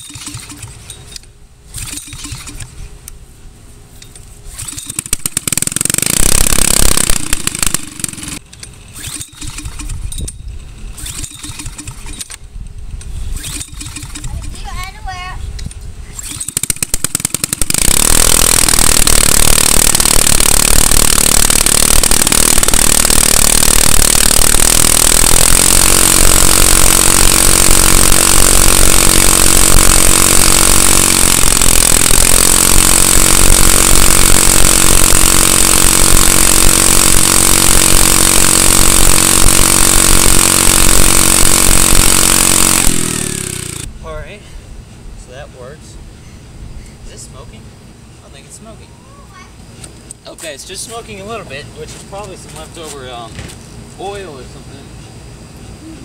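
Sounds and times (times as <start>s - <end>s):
go-kart engine running: 4.6s - 8.4s, 16.3s - 43.9s
starting fluid spraying: 4.6s - 8.4s, 16.3s - 43.9s.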